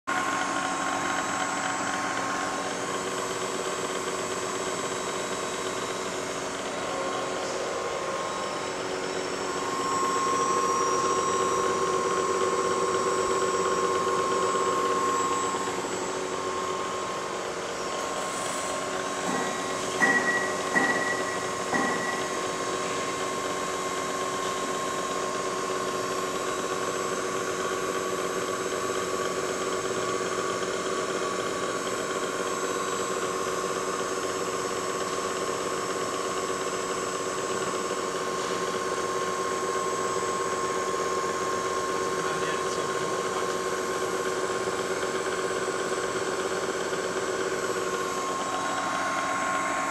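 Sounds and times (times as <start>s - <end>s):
milling machine hum and whine: 0.1s - 49.9s.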